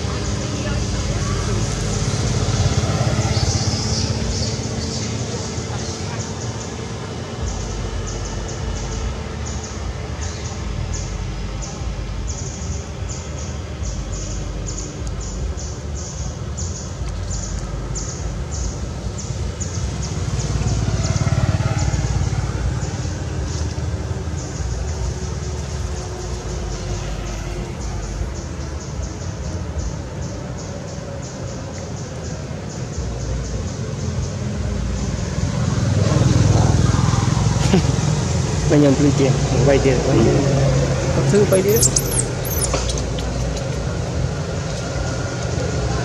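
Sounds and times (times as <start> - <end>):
steady low rumble: 0.0 - 20.8
high chirping: 38.9 - 43.8.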